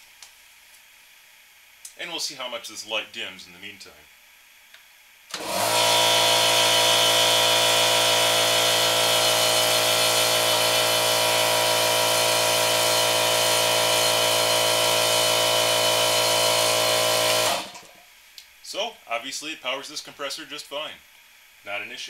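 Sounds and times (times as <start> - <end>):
electric air compressor running: 5.3 - 17.9.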